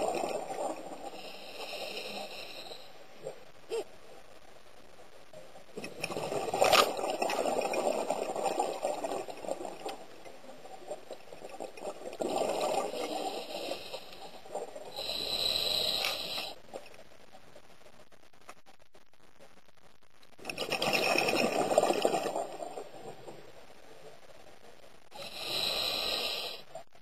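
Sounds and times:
hissing regulator inhale: 0:01.1 - 0:03.0, 0:13.0 - 0:16.6, 0:25.2 - 0:26.7
gurgling exhaled bubbles: 0:05.8 - 0:16.4, 0:20.4 - 0:23.3.

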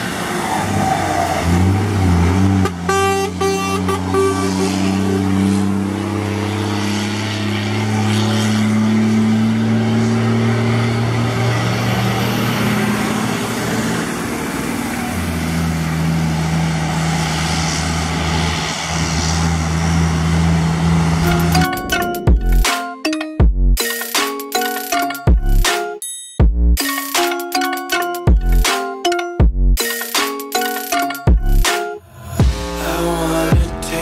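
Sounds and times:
truck diesel engine: 0:00.0 - 0:22.8, 0:30.6 - 0:34.0.

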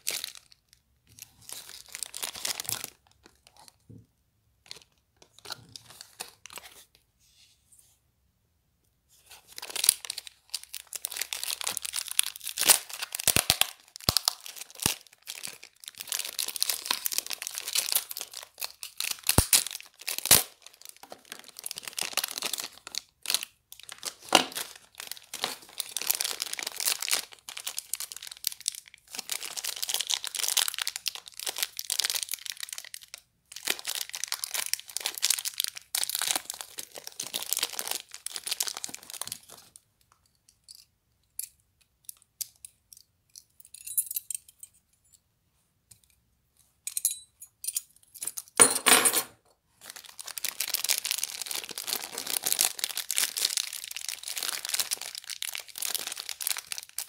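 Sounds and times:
plastic bags crinkling: 0:00.0 - 0:03.8, 0:04.6 - 0:06.7, 0:09.4 - 0:39.8, 0:49.8 - 0:57.0.

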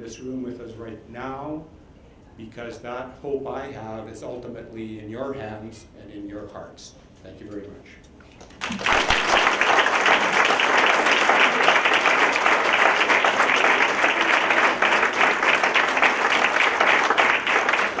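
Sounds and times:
audience applauding: 0:08.4 - 0:18.0.

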